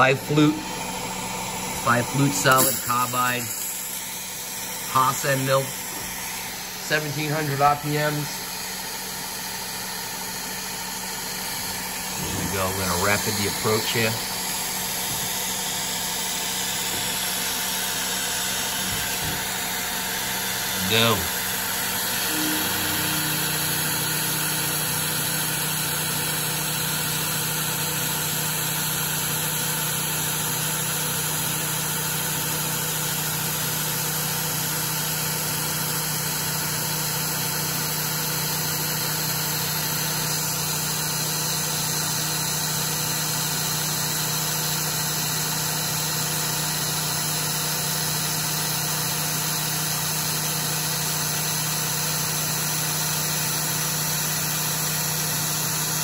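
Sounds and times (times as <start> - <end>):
end mill cutting metal: 0.0 - 8.6, 16.4 - 30.1.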